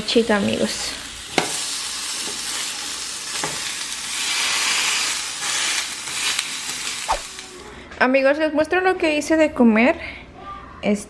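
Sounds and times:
meat sizzling in oil: 0:00.0 - 0:07.6.

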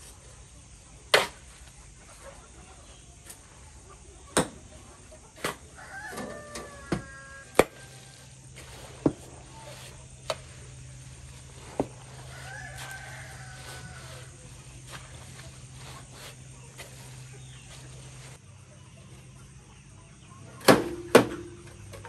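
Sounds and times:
rooster crowing: 0:05.6 - 0:08.9, 0:11.6 - 0:15.9.

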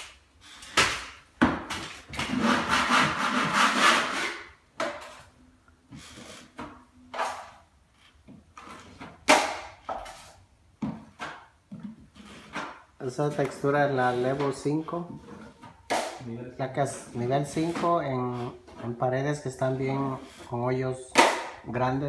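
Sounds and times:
drywall knife scraping wall: 0:01.7 - 0:05.2, 0:11.1 - 0:16.2, 0:16.8 - 0:21.4.

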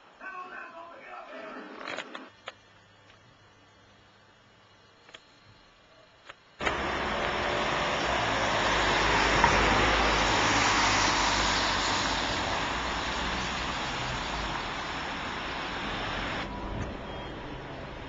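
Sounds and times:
road traffic noise from vehicle: 0:06.6 - 0:18.0.

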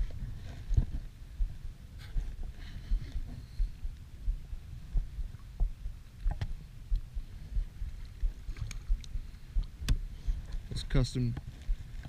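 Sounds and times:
small waves lapping: 0:07.6 - 0:10.4.

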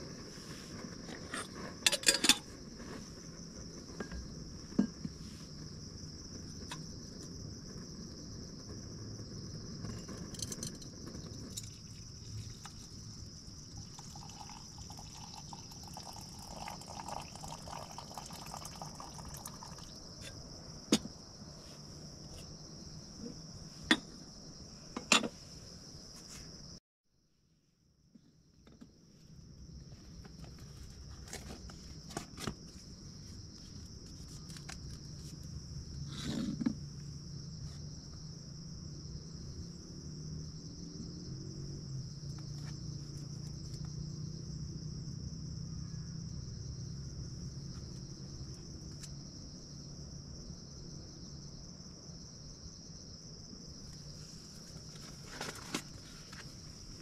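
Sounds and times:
insects chirring: 0:00.0 - 0:26.8, 0:28.4 - 0:57.0
metal cookware clinking: 0:01.9 - 0:02.4
water poured into metal mug: 0:13.6 - 0:20.0.

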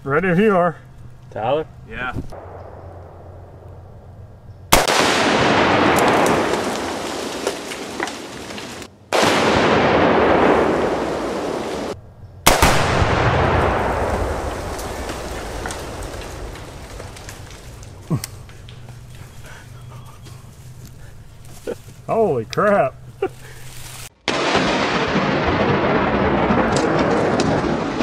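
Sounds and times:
explosion blast with rumble: 0:04.7 - 0:07.5, 0:09.1 - 0:11.8, 0:12.4 - 0:18.0, 0:24.3 - 0:28.0.

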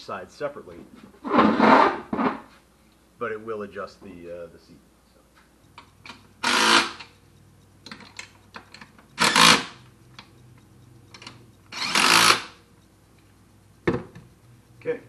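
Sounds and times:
cordless drill bursts: 0:06.4 - 0:07.1, 0:09.2 - 0:09.8, 0:11.7 - 0:12.6.

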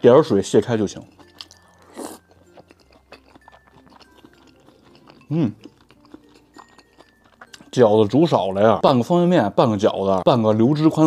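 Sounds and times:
wet chewing mouth sounds: 0:01.0 - 0:08.5
person humming mm: 0:05.3 - 0:05.6.

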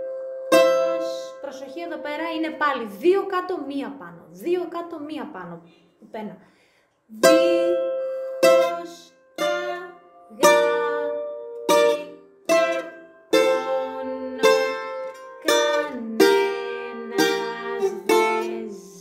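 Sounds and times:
bouzouki slow melody: 0:00.0 - 0:02.4, 0:07.1 - 0:19.0.

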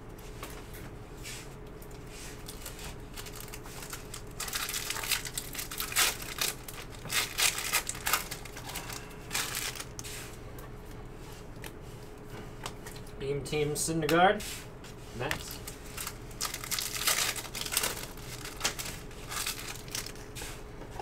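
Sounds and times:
foil wrapper crinkling: 0:01.9 - 0:10.1, 0:15.2 - 0:20.6.

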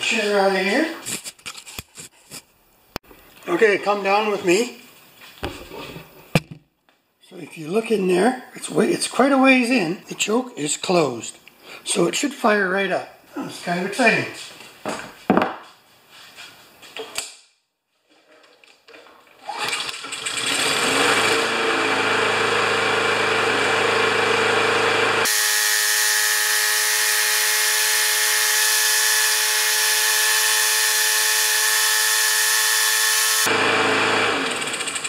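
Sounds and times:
mower engine starting and running: 0:19.4 - 0:35.0.

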